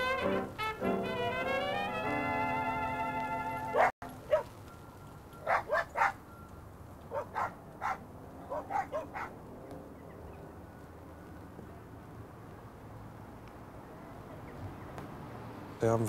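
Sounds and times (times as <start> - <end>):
dog barking: 3.7 - 4.6, 5.4 - 6.2, 7.1 - 9.4.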